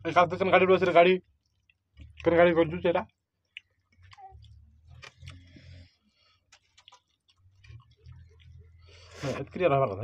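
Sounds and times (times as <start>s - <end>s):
chewing and mouth smacks: 1.2s - 2.4s, 3.1s - 9.4s.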